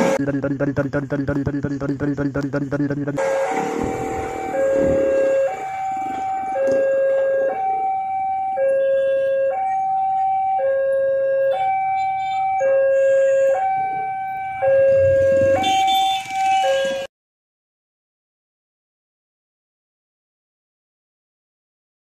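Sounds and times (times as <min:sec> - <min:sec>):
two-tone warning alarm: 0:00.0 - 0:17.1.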